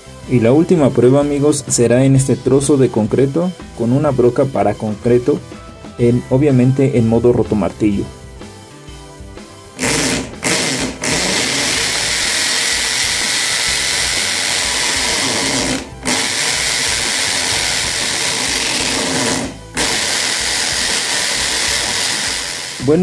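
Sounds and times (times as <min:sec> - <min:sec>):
hammer drill boring into concrete: 0:09.8 - 0:23.0.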